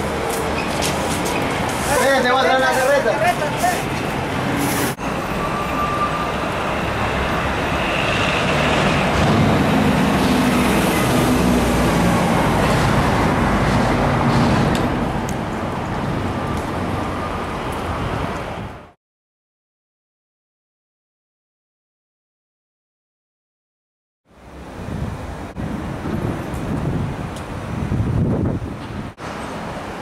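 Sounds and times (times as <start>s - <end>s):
street traffic rushing: 0.0s - 19.0s, 24.3s - 30.0s
vehicle passing close: 5.8s - 18.6s.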